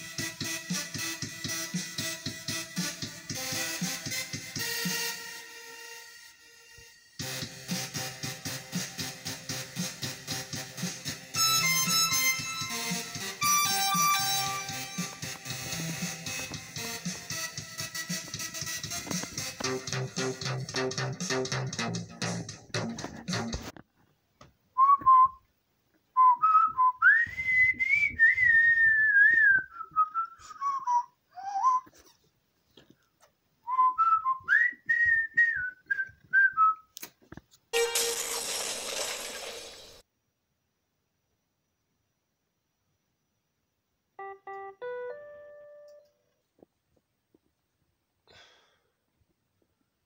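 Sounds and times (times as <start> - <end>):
keyboard playing notes: 0.0 - 23.7, 44.2 - 46.2
person whistling: 24.8 - 25.4, 26.2 - 32.0, 33.7 - 36.9.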